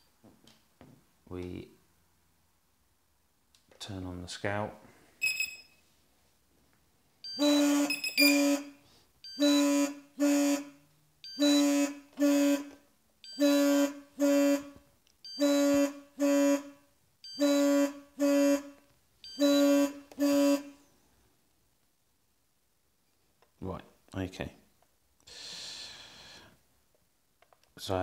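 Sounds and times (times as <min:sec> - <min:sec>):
buzzy double beep: 0:07.2 - 0:20.8.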